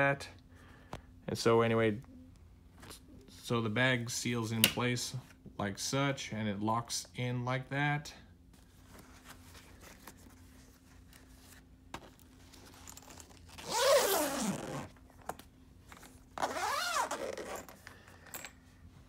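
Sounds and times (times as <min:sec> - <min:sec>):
zipper being pulled shut: 0:12.9 - 0:15.0, 0:16.4 - 0:17.8.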